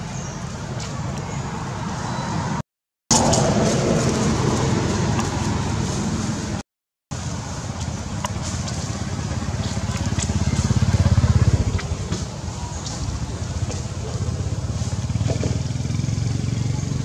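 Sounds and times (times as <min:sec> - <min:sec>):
vehicle engine pulsing: 0:07.2 - 0:17.0.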